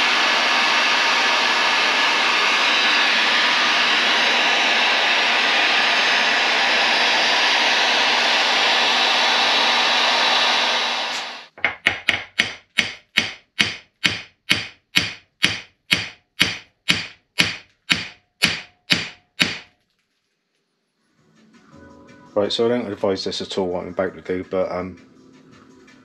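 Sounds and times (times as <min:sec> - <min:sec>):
heat gun blowing: 0:00.0 - 0:11.5, 0:12.1 - 0:19.7
hammer striking metal shaft: 0:11.6 - 0:19.7.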